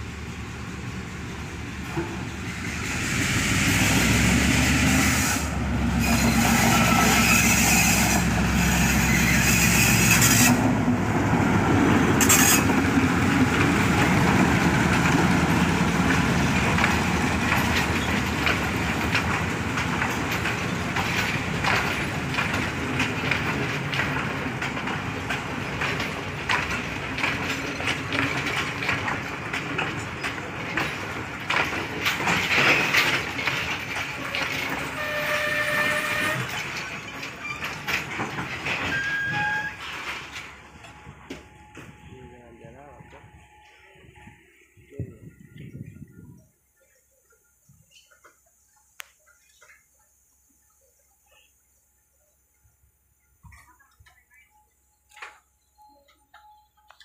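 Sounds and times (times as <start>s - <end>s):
train wheels clacking on rail joints: 0.0s - 44.4s
diesel locomotive engine: 0.0s - 49.6s.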